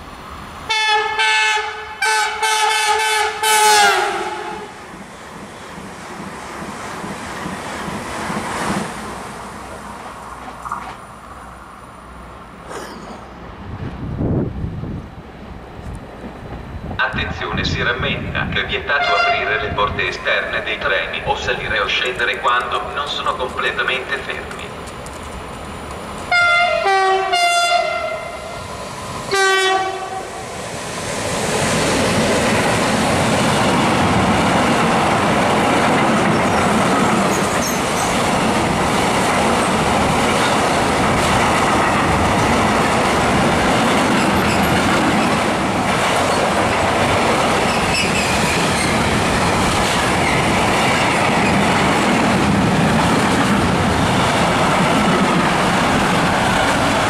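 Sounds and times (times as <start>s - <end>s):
train horn: 0.7s - 4.8s, 19.0s - 19.5s, 26.3s - 28.6s, 29.3s - 30.3s
train rumble and wheel clatter: 2.0s - 57.0s.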